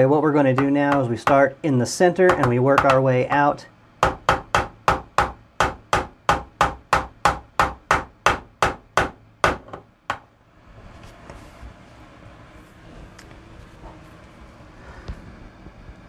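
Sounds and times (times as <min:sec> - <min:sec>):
hammer tapping fret wire: 0:00.5 - 0:01.6, 0:02.3 - 0:08.4.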